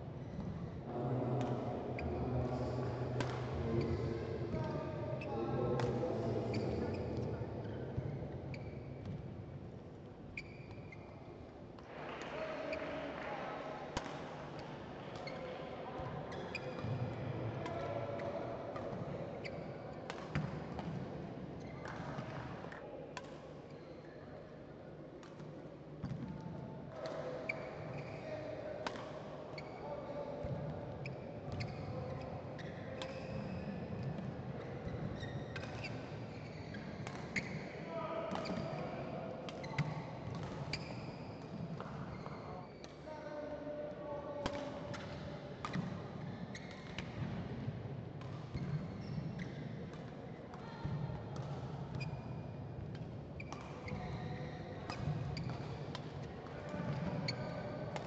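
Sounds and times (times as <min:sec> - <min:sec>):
faint hall murmur: 0:00.0 - 0:08.6, 0:11.1 - 0:40.8, 0:41.5 - 0:58.0
shoe squeaks on court: 0:06.5 - 0:07.8, 0:08.5 - 0:09.1, 0:10.4 - 0:11.2, 0:31.0 - 0:33.8, 0:34.6 - 0:37.6, 0:40.7 - 0:41.4, 0:48.6 - 0:49.6, 0:52.0 - 0:52.4, 0:53.4 - 0:55.6, 0:56.9 - 0:57.6
shoes squeaking on court: 0:08.5 - 0:09.2, 0:10.4 - 0:11.1, 0:34.6 - 0:37.6, 0:39.6 - 0:42.9
rackets hitting shuttlecock: 0:38.3 - 0:38.8, 0:44.4 - 0:45.9, 0:52.8 - 0:54.1, 0:54.9 - 0:57.3.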